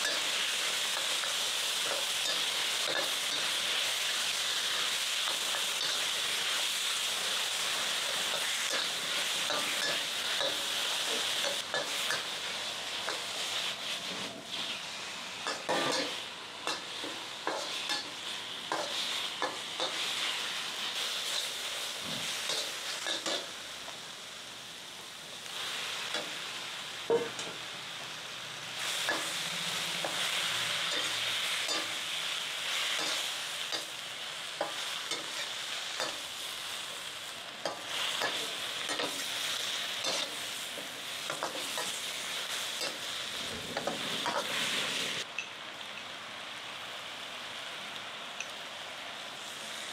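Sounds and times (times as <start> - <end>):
food sizzling in a wok: 0.0 - 49.9
metal spatula scraping wok: 13.9 - 23.5, 37.6 - 45.2.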